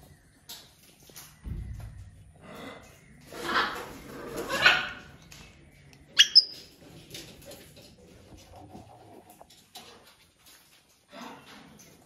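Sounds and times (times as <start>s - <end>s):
parrots squawking: 6.2s - 6.6s.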